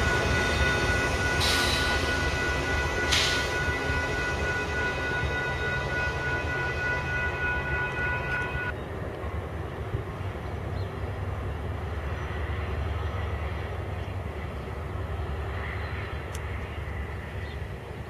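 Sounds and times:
passing train rumble: 0:00.0 - 0:18.0.

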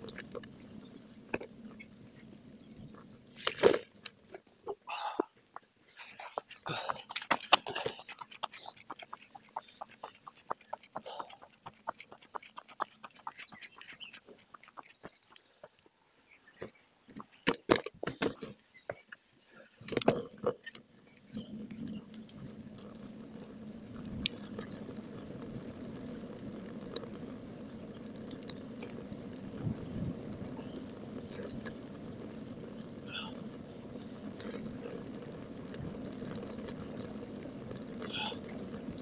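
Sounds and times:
wind and tyre noise: 0:00.0 - 0:04.6, 0:05.4 - 0:39.0
bicycle clicking and rattling: 0:05.5 - 0:15.7, 0:33.4 - 0:39.0.

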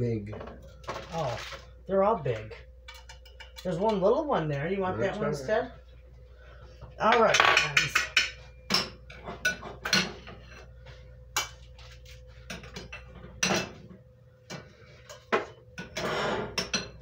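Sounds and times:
utensil clinking on dishes: 0:02.8 - 0:04.0, 0:07.0 - 0:10.6, 0:12.5 - 0:13.8, 0:14.5 - 0:17.0.

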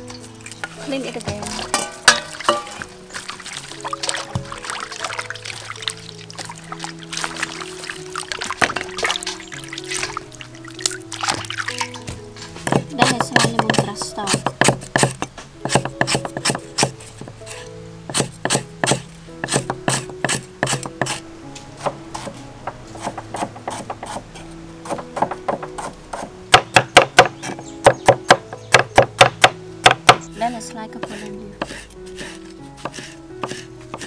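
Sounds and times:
background music: 0:00.0 - 0:34.0
cleaver chopping on wooden block: 0:12.6 - 0:17.3, 0:18.1 - 0:21.2, 0:24.8 - 0:30.3, 0:31.0 - 0:34.0.

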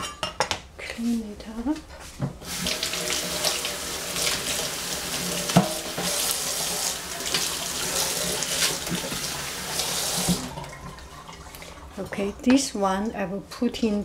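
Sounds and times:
tap running into a steel sink: 0:05.4 - 0:06.4.

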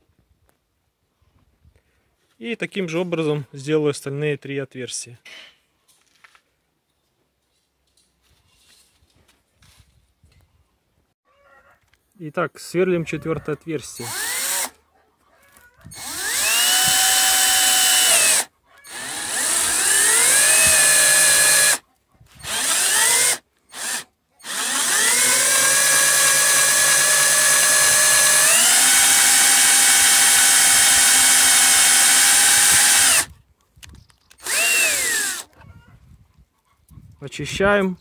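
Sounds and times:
cordless drill whining: 0:13.9 - 0:14.7, 0:15.8 - 0:33.3, 0:34.3 - 0:35.6.

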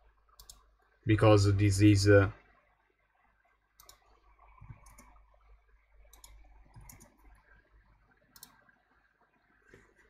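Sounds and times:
faint low hum: 0:00.0 - 0:10.0
mouse and keyboard clicks: 0:03.8 - 0:04.0, 0:04.7 - 0:05.2, 0:06.1 - 0:07.2.

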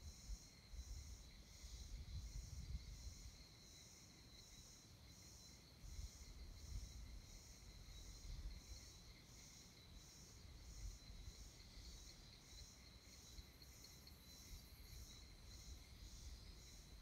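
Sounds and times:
wind rumble on microphone: 0:00.0 - 0:03.4, 0:05.9 - 0:08.8
high-pitched insect trill: 0:00.0 - 0:17.0
insects chirping: 0:00.0 - 0:17.0.

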